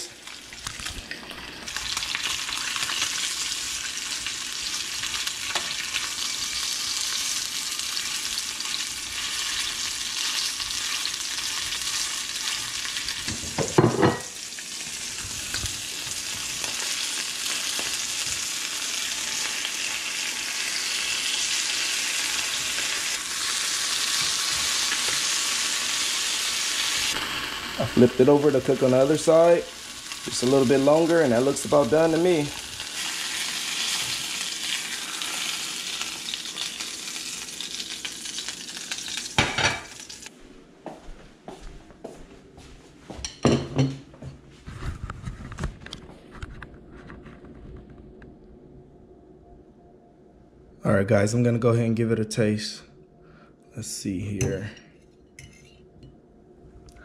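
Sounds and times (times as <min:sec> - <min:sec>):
fish sizzling in frying pan: 0:00.0 - 0:40.3.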